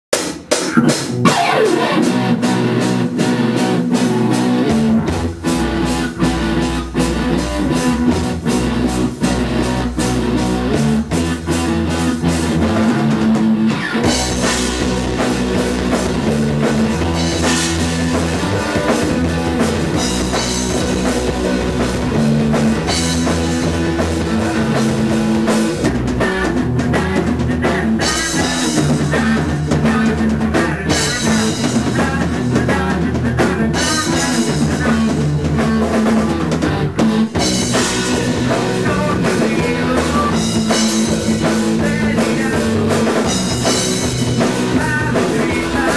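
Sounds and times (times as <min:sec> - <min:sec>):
bass guitar: 0:00.1 - 0:45.9
drum kit with cymbals: 0:00.1 - 0:45.9
electric guitar: 0:00.2 - 0:45.9.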